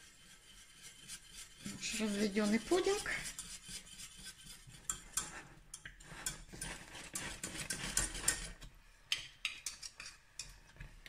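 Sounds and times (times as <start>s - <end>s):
whisk scraping a saucepan: 0.0s - 8.8s.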